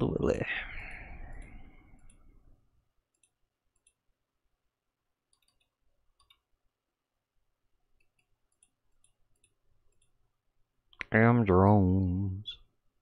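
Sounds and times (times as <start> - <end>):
mouse scroll wheel clicking: 3.1 - 4.0, 5.3 - 6.5, 8.0 - 10.2.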